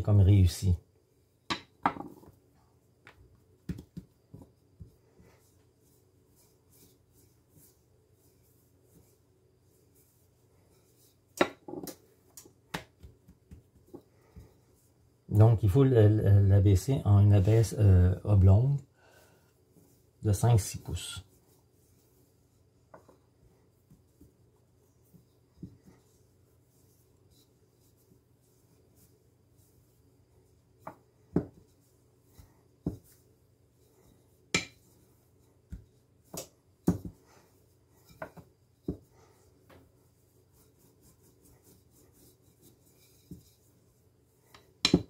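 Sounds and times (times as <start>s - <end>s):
rolling pin knocking on counter: 1.5s - 2.3s, 3.7s - 4.4s, 30.8s - 31.6s
rolling pin rubbing on dough: 2.0s - 18.6s, 19.6s - 45.0s.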